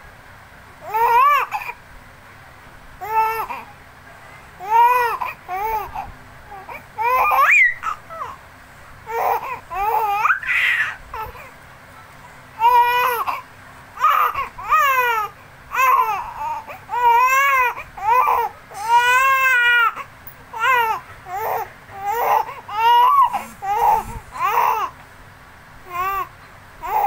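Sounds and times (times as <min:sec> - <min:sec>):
baby squealing: 0:07.0 - 0:08.4, 0:09.1 - 0:11.3, 0:20.6 - 0:24.9.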